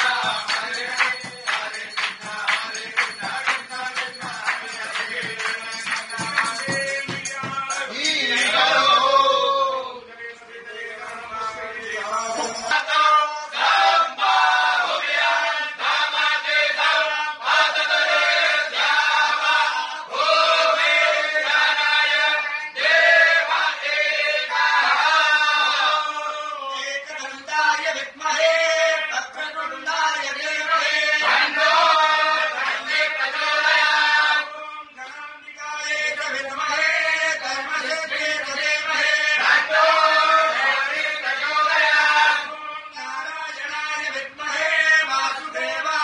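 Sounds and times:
group of men chanting a hymn: 0.0 - 46.0.

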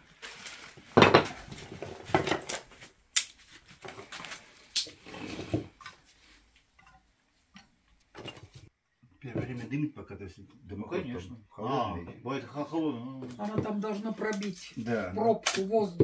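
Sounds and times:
logs knocking and clattering: 0.9 - 2.7.

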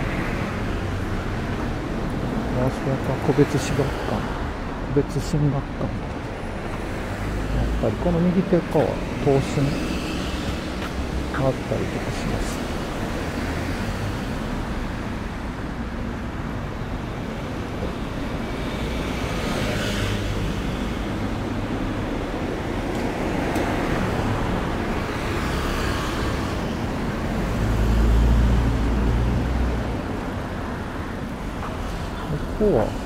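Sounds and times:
cars driving past: 6.1 - 33.0.

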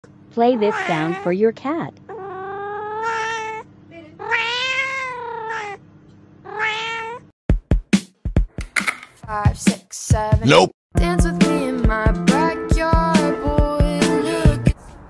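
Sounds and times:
cat meowing: 0.5 - 1.4, 2.1 - 5.8, 6.4 - 7.3.

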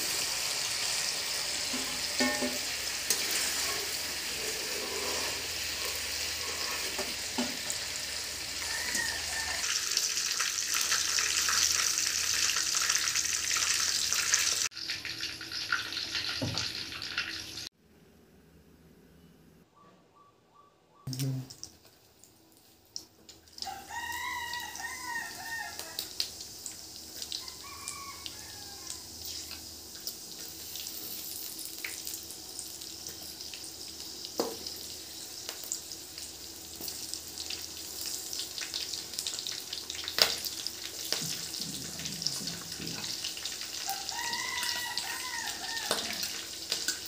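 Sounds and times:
spices sizzling in hot oil: 0.0 - 17.7, 21.5 - 47.0
rooster crowing: 3.6 - 9.9, 23.6 - 26.2, 27.3 - 29.3, 43.8 - 46.5.

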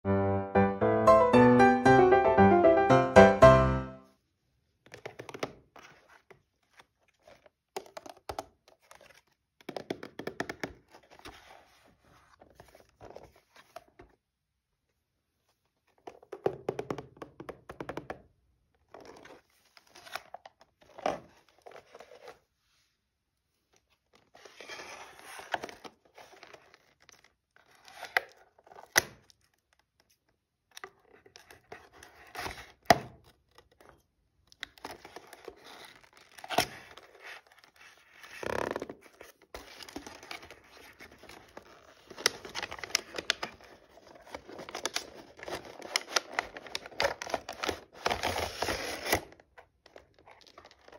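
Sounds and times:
plastic crinkling: 34.6 - 50.9.

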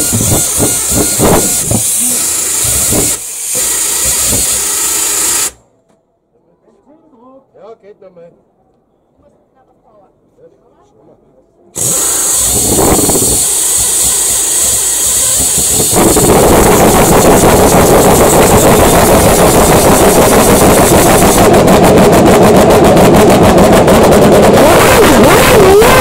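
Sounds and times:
starter whirring: 0.0 - 5.6, 11.8 - 26.0
racing car engine running rough: 14.6 - 26.0.

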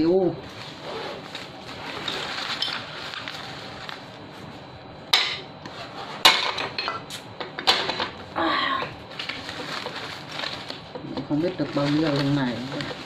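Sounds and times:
banknotes and plastic rustling: 0.4 - 4.6, 9.0 - 13.0.

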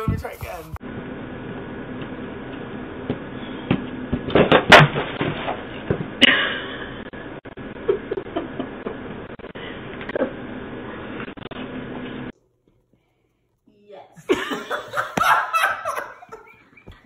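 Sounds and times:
faint shuffling: 0.0 - 0.8.

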